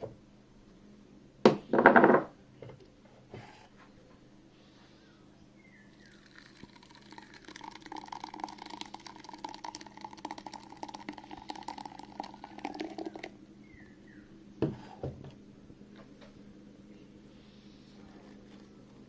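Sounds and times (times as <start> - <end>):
pulp pouring and splashing: 6.0 - 13.3.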